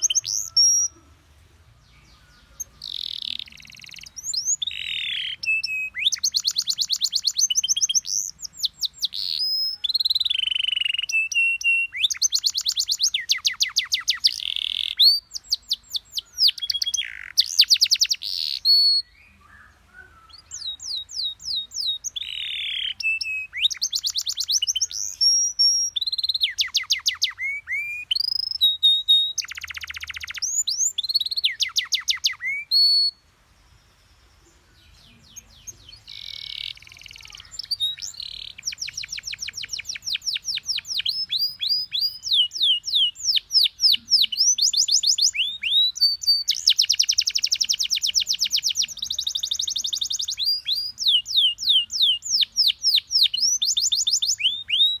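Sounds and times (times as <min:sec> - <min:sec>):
canary singing: 0:00.0 - 0:33.3, 0:34.0 - 0:55.0.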